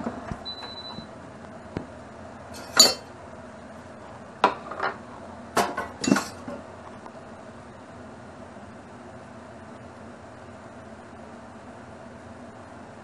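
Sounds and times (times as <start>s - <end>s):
cookware clanking into sink: 2.6s - 3.1s, 5.6s - 6.6s.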